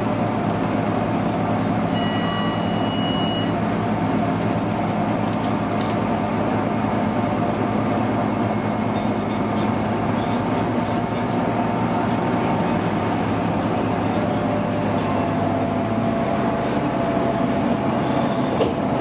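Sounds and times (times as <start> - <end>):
bus diesel engine running: 0.0 - 19.0
electronic stop-request chime: 2.0 - 3.6.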